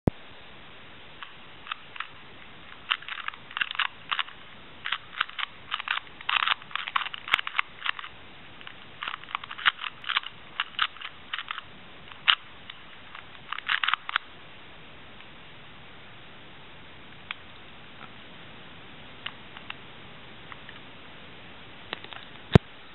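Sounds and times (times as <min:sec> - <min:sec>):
plastic puzzle cube clicking: 0:01.2 - 0:11.6, 0:12.2 - 0:14.2.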